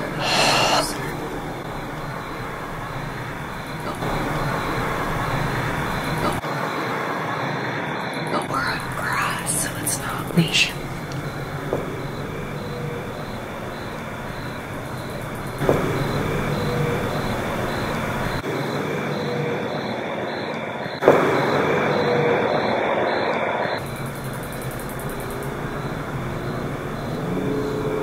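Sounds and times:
faint drawn-out moan: 0:00.0 - 0:01.7
background hiss: 0:00.0 - 0:06.4, 0:08.4 - 0:18.6.

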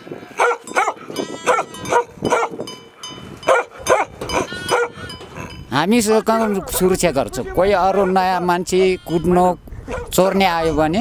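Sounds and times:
dog barking: 0:00.4 - 0:02.6, 0:03.5 - 0:05.0, 0:06.5 - 0:09.0, 0:09.8 - 0:10.5.

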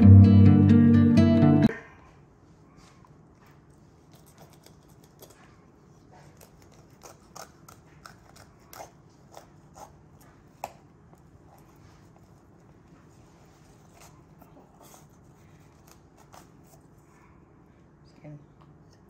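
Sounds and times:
knife scraping fish: 0:06.3 - 0:10.0.

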